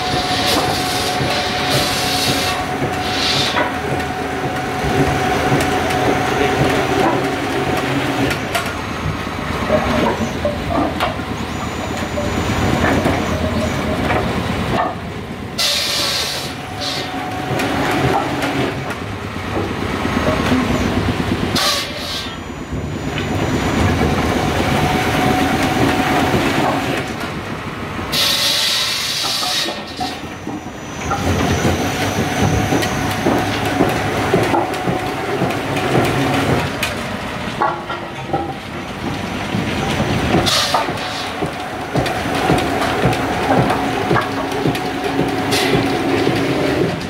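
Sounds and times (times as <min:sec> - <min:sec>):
machinery rattling clatter: 0:00.0 - 0:15.0, 0:29.2 - 0:47.0
motors humming: 0:39.9 - 0:47.0.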